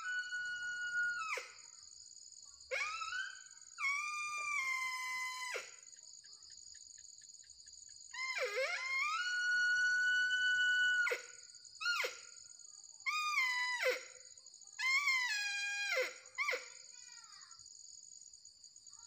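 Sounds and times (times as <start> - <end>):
deer caller whistling wail: 0.0 - 1.5, 2.7 - 5.7, 8.2 - 11.3
insect drone: 0.0 - 19.0.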